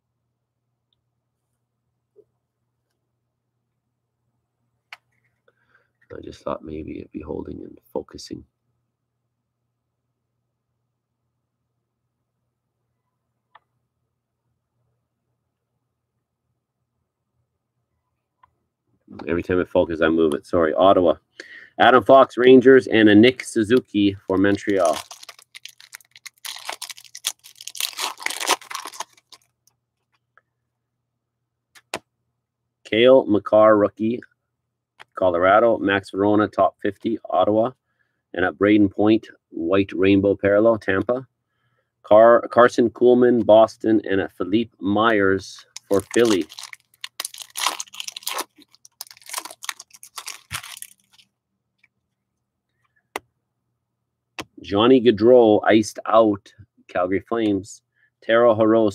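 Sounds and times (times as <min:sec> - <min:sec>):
trading cards rustling and snapping: 0:23.7 - 0:29.6, 0:45.7 - 0:51.3.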